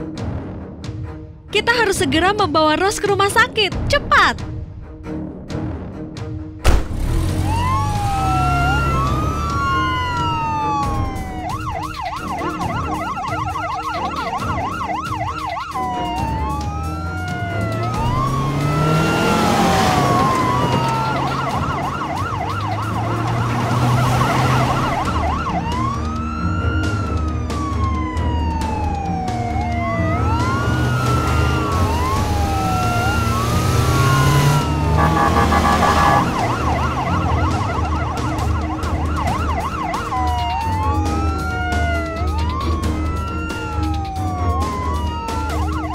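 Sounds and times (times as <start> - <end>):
ambulance siren wail and yelp: 7.4 - 45.9.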